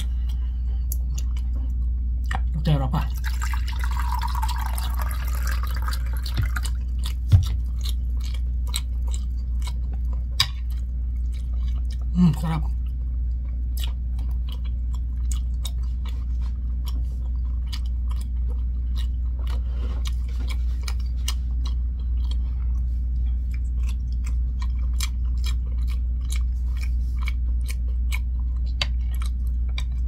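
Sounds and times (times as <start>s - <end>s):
steady low hum: 0.0s - 30.0s
chewing mouth clicks: 13.4s - 30.0s.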